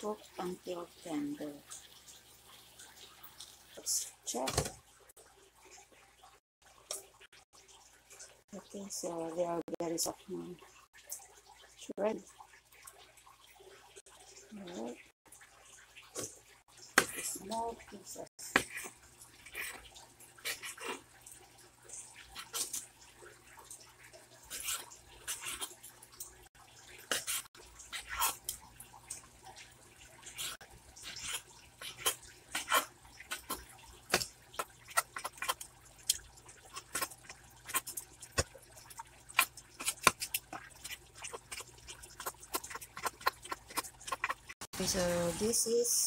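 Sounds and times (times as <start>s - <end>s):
knife cutting meat wet squishes: 18.5s - 21.0s, 27.0s - 28.6s, 30.3s - 44.6s.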